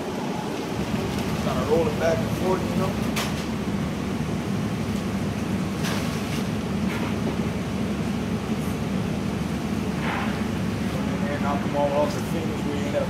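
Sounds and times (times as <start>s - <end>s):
pea sheller machine humming: 0.0s - 5.8s.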